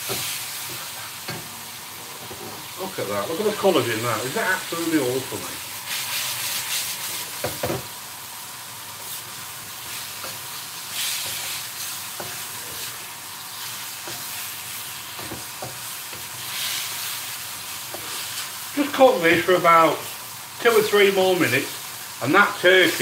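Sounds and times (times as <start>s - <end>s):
food sizzling in a wok: 0.0s - 23.0s
spatula scraping and knocking pan: 9.8s - 12.9s, 13.6s - 17.2s.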